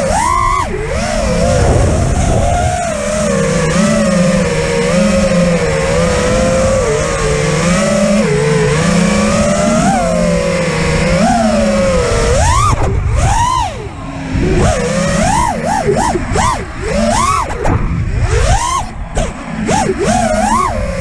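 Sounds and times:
quadcopter motors whining: 0.0s - 21.0s
rushing air: 1.2s - 3.1s.

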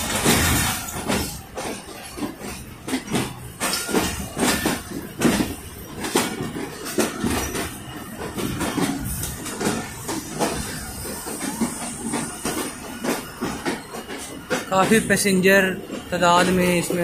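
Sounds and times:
train running noise: 0.0s - 17.0s
train wheels clacking over rail joints: 0.0s - 17.0s.

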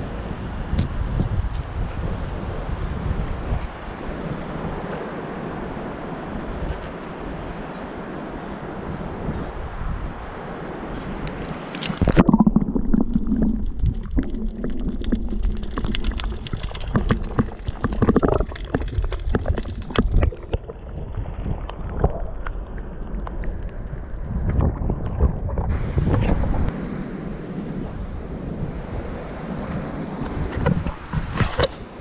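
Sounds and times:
waves: 0.0s - 32.0s
wind: 0.0s - 32.0s
underwater clicks and knocks: 11.8s - 20.9s
muffled underwater gurgling: 11.8s - 26.7s.

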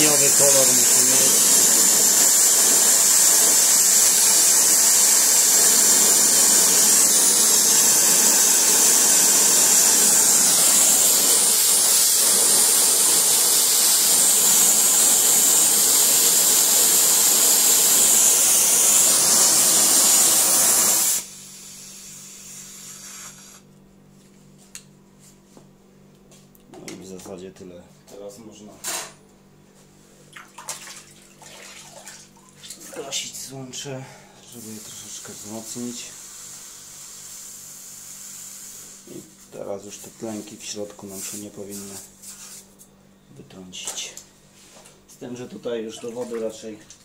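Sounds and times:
torch flame hissing: 0.0s - 23.7s, 34.5s - 39.3s.

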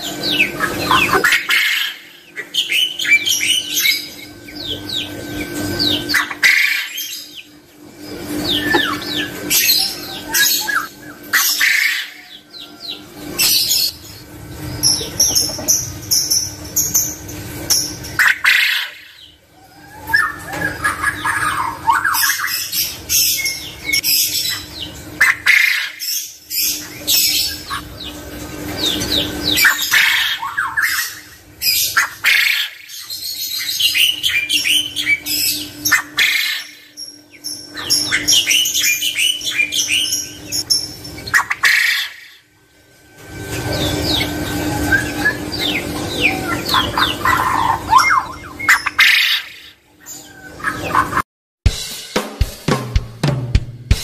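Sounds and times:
small birds chirping: 0.0s - 42.5s, 43.6s - 51.2s
steady low hum: 0.0s - 51.9s
quail calling: 0.1s - 5.1s, 5.7s - 7.4s, 8.3s - 13.0s, 18.2s - 22.7s, 25.2s - 26.1s, 28.8s - 33.1s, 33.7s - 36.9s, 41.3s - 42.5s, 43.7s - 51.2s.

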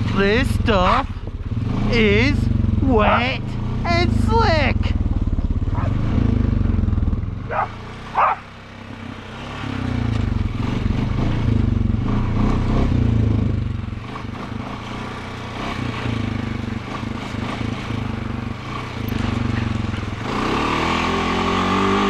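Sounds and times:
atv engine running: 0.0s - 22.0s
dog barking: 0.8s - 1.1s, 3.0s - 3.3s, 5.7s - 6.0s, 7.5s - 8.5s.

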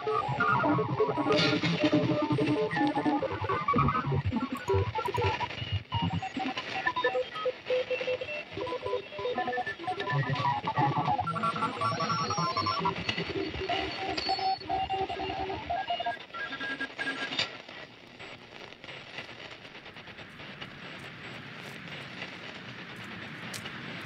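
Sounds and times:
faint clicks: 4.4s - 6.8s, 16.2s - 24.0s.

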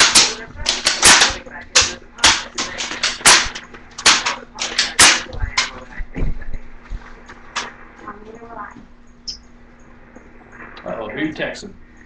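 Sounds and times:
toy gun firing sharp cracks: 0.0s - 5.3s.

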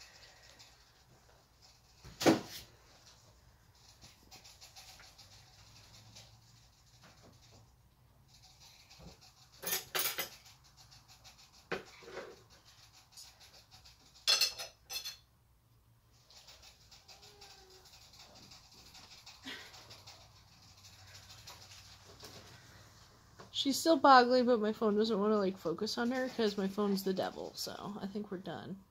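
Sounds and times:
rat teeth grinding chatter: 0.0s - 2.2s, 2.8s - 15.1s, 16.1s - 23.0s
metallic clinking and rattling: 9.6s - 10.5s.

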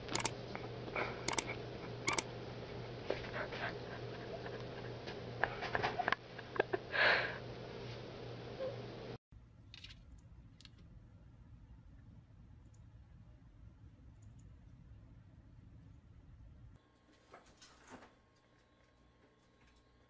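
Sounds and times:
mouse clicks: 0.0s - 0.3s.

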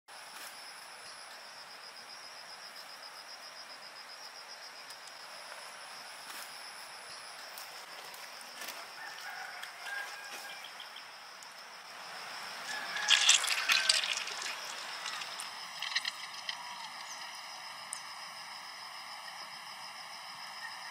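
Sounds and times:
insect trill: 0.1s - 20.9s
hands rubbing snails crackling: 12.7s - 17.2s.

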